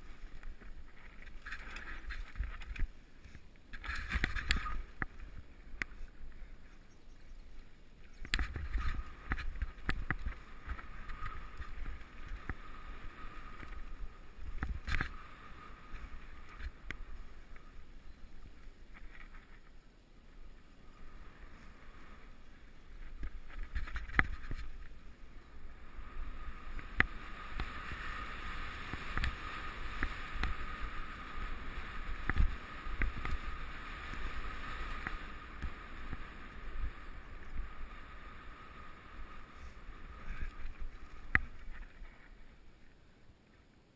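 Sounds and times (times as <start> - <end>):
bike rattling over bumps: 0.0 - 6.1, 8.1 - 17.6, 22.9 - 42.6
steady high whir: 20.4 - 42.6.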